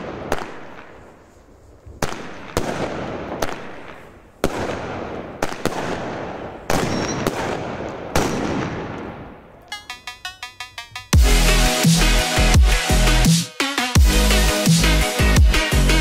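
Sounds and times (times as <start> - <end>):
firework bangs with rolling echo: 0.0 - 1.2, 1.8 - 9.5
rhythmic electronic music: 9.7 - 16.0.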